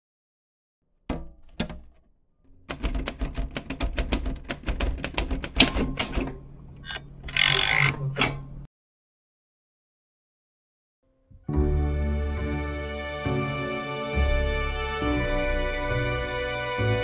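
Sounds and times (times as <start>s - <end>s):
manual typewriter key clacks: 2.6s - 8.4s.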